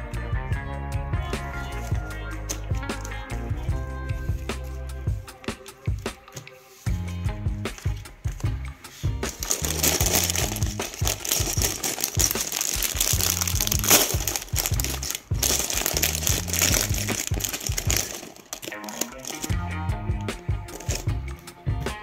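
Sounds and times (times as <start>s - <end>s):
plastic bag crinkling: 9.2s - 19.6s, 20.7s - 21.1s.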